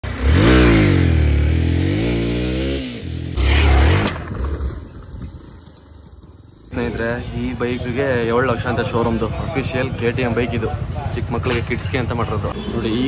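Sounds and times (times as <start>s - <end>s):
motocross bike engine revving: 0.0s - 4.8s.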